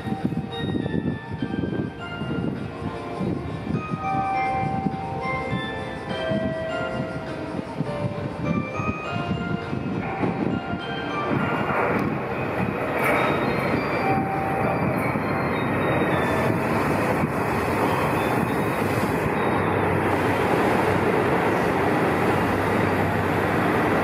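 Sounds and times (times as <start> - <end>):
train wheels rumbling on rail: 0.0 - 24.0
diesel engines: 9.8 - 24.0.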